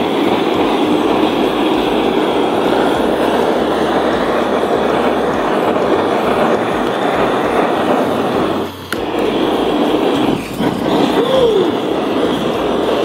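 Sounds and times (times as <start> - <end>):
kitchen torch hissing: 0.0 - 13.0
torch click: 0.0 - 13.0.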